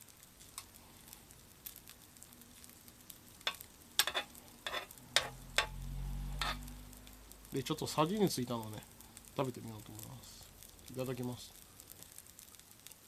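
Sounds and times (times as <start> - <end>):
rice sizzling in butter: 0.0 - 13.0
metal spoon scraping and tapping: 3.5 - 5.8, 6.4 - 6.7.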